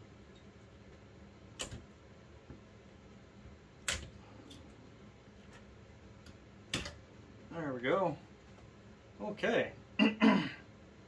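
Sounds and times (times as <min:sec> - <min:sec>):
clicks and knocks of heatsink handling: 0:05.5 - 0:07.1.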